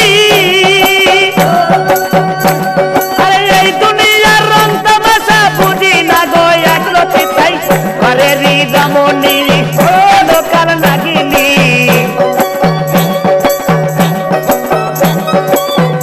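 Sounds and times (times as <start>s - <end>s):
folk music melody: 0.0s - 16.0s
rattling shaker: 0.0s - 16.0s
steady percussion beat: 0.0s - 16.0s.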